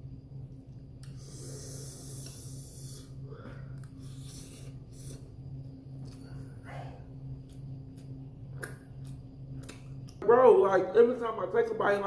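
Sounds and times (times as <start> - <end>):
low steady hum: 0.0 - 12.0
man breathing heavily and sniffing: 1.1 - 5.4.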